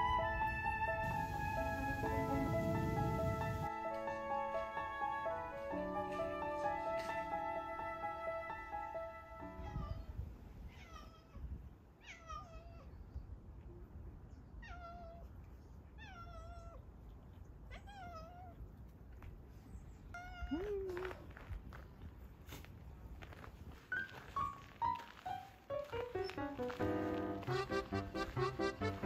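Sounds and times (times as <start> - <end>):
cat meowing: 10.7 - 13.0, 14.6 - 15.3, 15.9 - 16.8, 17.7 - 18.6, 20.1 - 21.2.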